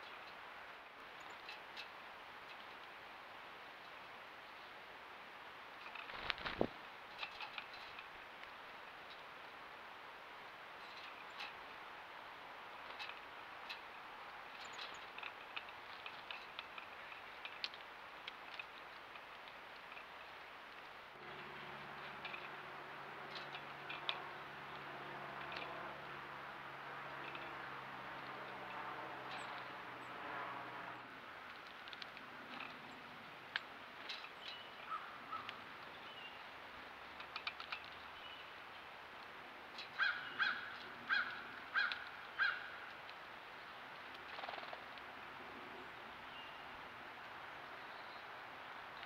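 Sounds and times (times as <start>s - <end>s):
birds tapping on wire feeder: 5.8s - 9.3s, 10.8s - 11.8s, 12.6s - 43.2s, 43.9s - 45.1s
bird pecking at a metal feeder: 21.2s - 29.8s, 31.5s - 32.8s
small birds calling: 34.0s - 39.0s, 39.7s - 44.9s, 45.6s - 49.0s.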